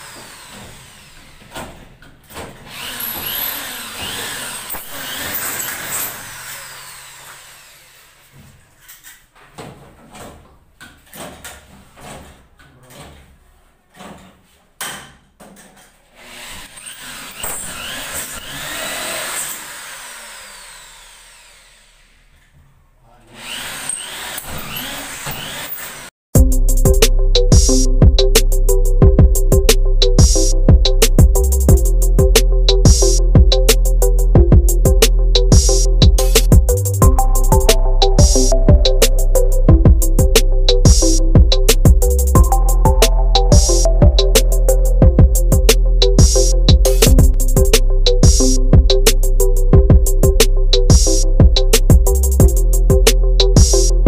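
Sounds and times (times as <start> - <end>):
power drill running: 0.0 - 1.5, 2.7 - 8.3, 16.2 - 22.3, 23.4 - 26.1
knocks and clicks: 39.8 - 49.2.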